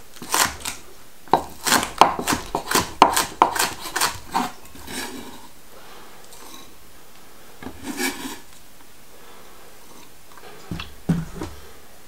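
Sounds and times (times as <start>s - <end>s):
knife scraping on wooden board: 0.2s - 0.8s, 1.4s - 5.5s, 7.6s - 8.6s.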